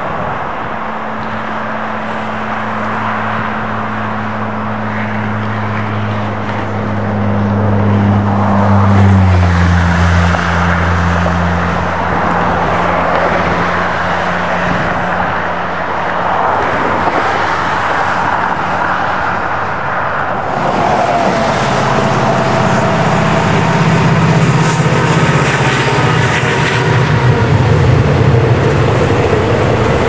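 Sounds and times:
diesel locomotive engine drone: 0.0 - 30.0
wind on microphone: 0.0 - 30.0
train rolling: 19.2 - 30.0.

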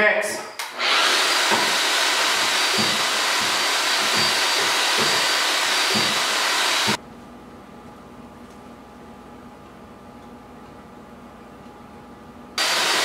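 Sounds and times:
power drill with paddle mixer: 0.6 - 7.0, 12.6 - 13.0.

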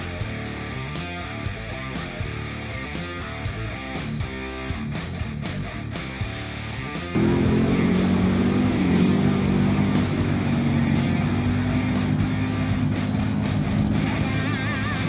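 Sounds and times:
guitar music: 0.0 - 15.0
suv engine under load: 7.2 - 13.9.

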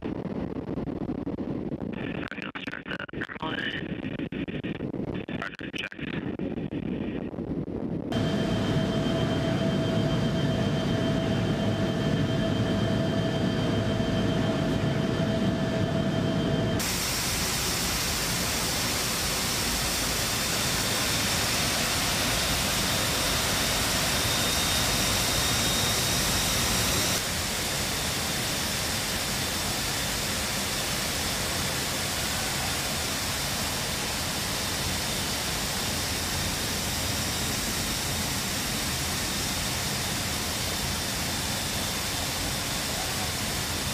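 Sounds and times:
jet engine drone: 0.0 - 43.9
rushing air hiss: 16.8 - 22.6.

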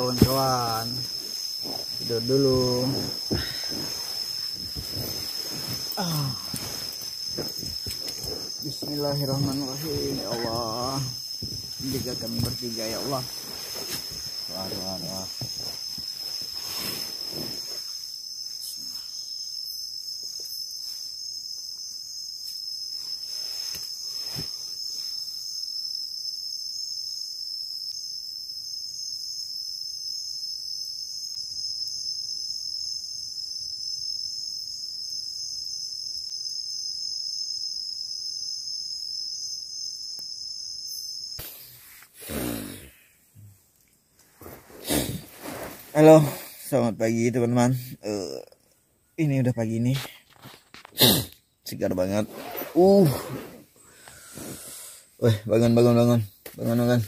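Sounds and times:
crickets chirping: 0.0 - 57.0.

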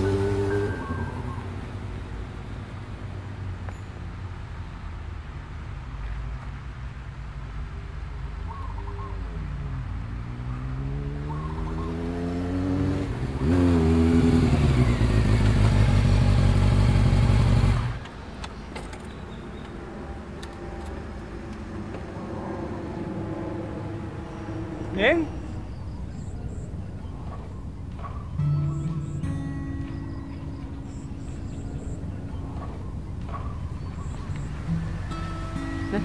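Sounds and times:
motorcycle engine accelerating: 0.0 - 2.1, 10.0 - 18.1, 27.1 - 36.0.

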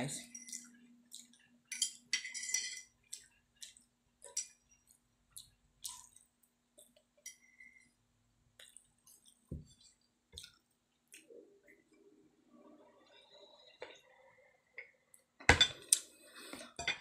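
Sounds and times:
cutlery scraping a plate: 1.7 - 2.9.

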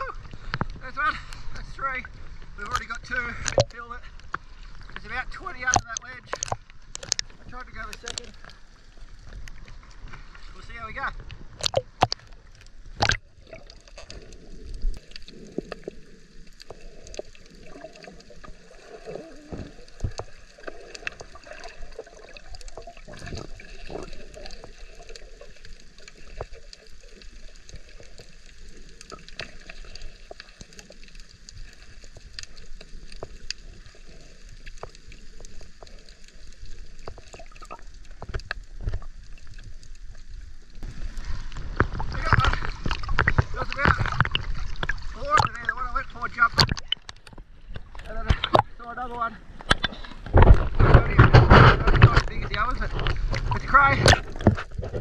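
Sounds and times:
underwater gurgling bubbles: 0.0 - 48.8, 49.4 - 55.0
small clicks and crackles: 0.0 - 48.9, 49.5 - 55.0
sharp water splashes: 9.6 - 14.2, 40.8 - 48.8, 49.6 - 55.0.

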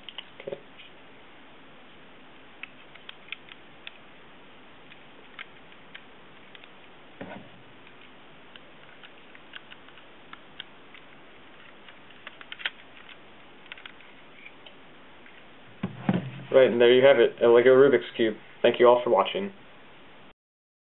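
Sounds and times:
dull knock: 15.8 - 16.5.

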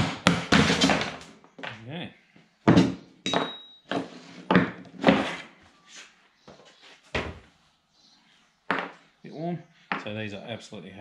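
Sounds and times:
tools knocking on plywood: 2.7 - 3.6
metallic ring: 3.2 - 3.9.

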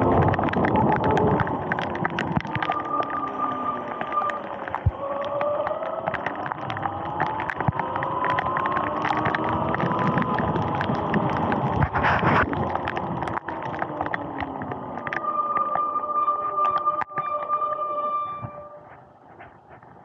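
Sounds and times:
tyres hissing on wet road: 0.0 - 17.0
raindrops ticking on camera: 0.0 - 20.0.

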